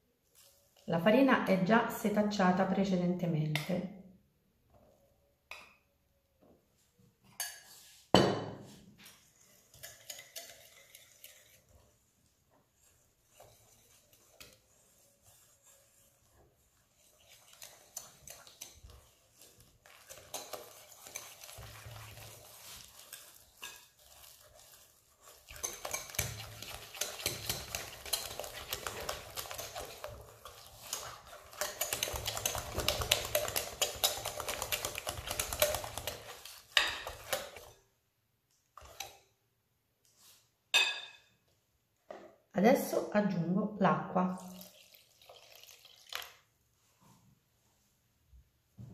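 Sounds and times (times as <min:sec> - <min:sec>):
whisk beating batter in glass bowl: 0:09.0 - 0:37.8, 0:38.8 - 0:39.2.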